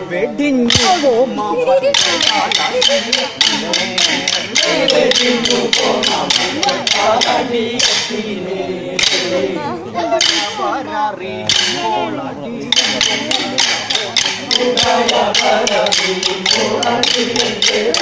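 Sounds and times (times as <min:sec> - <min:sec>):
wooden sticks clacking: 0:00.7 - 0:01.2, 0:01.8 - 0:08.4, 0:09.0 - 0:09.5, 0:10.2 - 0:10.7, 0:11.4 - 0:12.0, 0:12.7 - 0:18.0
men singing: 0:00.7 - 0:18.0.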